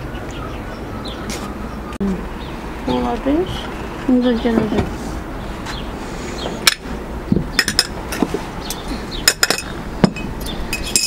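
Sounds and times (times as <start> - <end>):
glasses and teaspoons clinking: 9.3 - 11.0.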